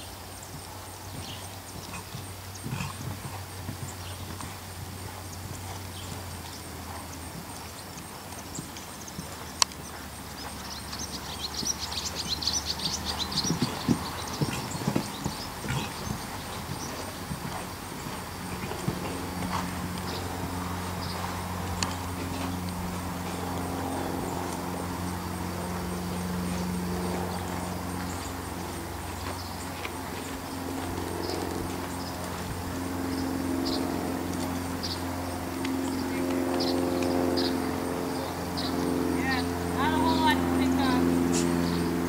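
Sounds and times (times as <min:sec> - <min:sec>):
hoofbeats on sand: 0:00.0 - 0:42.0
steady low hum: 0:00.0 - 0:42.0.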